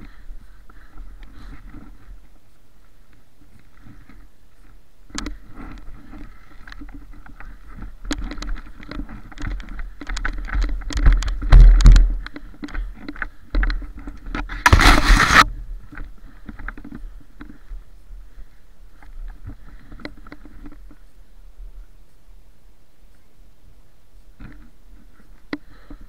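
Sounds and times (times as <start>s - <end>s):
branches rustling: 0.0s - 25.9s.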